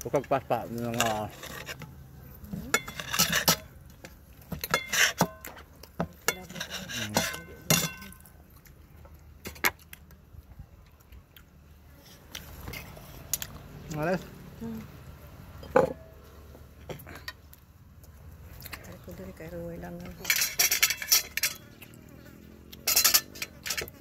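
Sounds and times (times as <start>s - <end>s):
utensils clinking against dishes: 0.9s - 1.8s, 2.5s - 3.7s, 6.3s - 8.2s, 20.0s - 22.0s, 22.8s - 24.0s.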